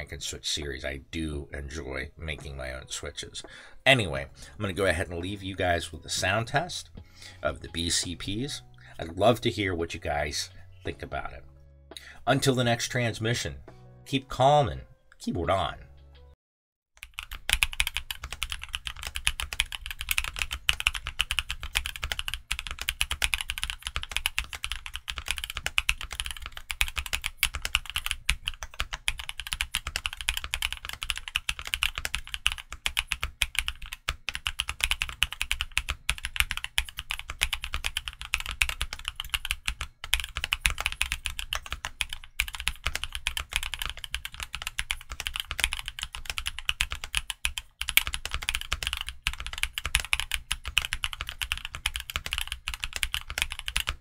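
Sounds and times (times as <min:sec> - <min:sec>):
fast mechanical keyboard typing: 0:17.0 - 0:54.0.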